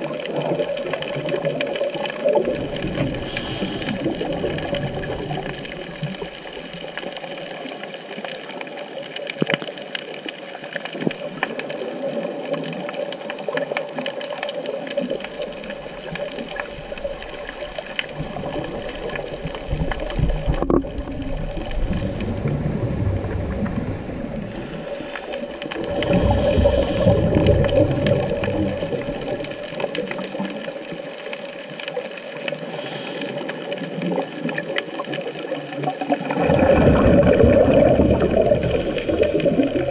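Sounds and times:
fine crackling clicks: 0:00.0 - 0:39.9
low rumble of moving water: 0:00.0 - 0:39.9
underwater hum: 0:00.0 - 0:39.9.

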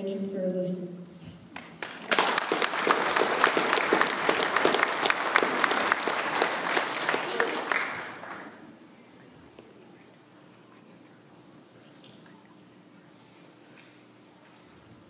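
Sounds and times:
congregation applauding: 0:01.6 - 0:08.7.

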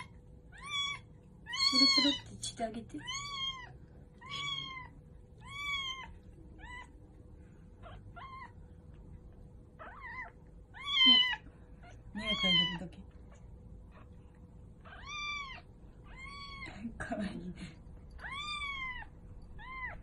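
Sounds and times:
kitten mewing: 0:00.0 - 0:02.3, 0:09.8 - 0:12.8.

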